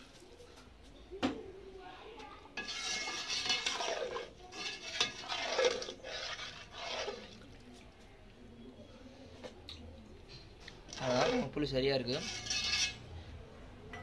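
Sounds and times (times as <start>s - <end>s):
ladle stirring liquid in a pot: 2.5s - 8.4s, 10.6s - 13.1s.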